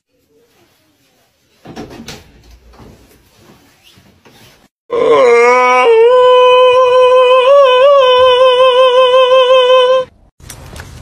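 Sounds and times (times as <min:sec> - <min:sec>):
man howling: 0:04.9 - 0:10.1.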